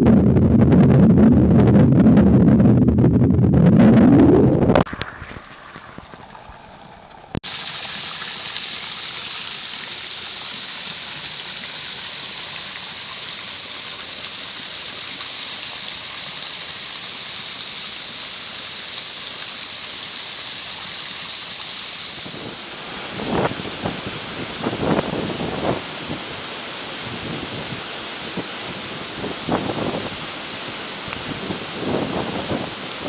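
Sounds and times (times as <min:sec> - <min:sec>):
waterfall rushing: 0:04.8 - 0:33.0.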